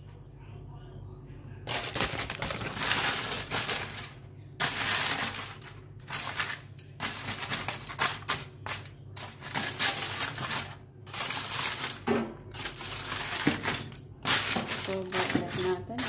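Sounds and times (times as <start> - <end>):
paper and foil crinkling: 1.7 - 16.0.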